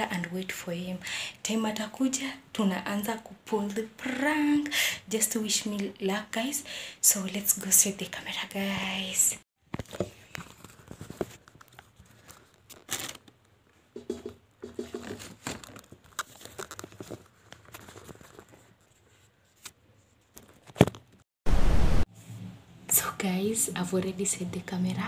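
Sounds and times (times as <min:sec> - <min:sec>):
clicks and rustles: 0:09.7 - 0:21.2
fingers rubbing and tapping phone: 0:14.0 - 0:15.3.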